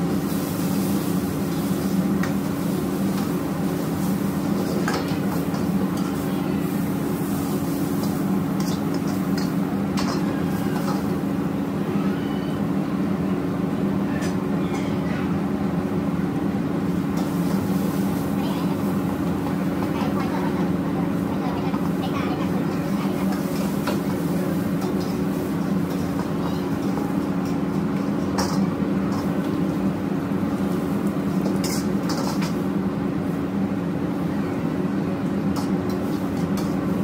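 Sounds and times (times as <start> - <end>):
ladle scraping wok: 0.0 - 11.6, 16.8 - 32.8, 35.4 - 37.0
gas wok burners roaring: 0.0 - 37.0.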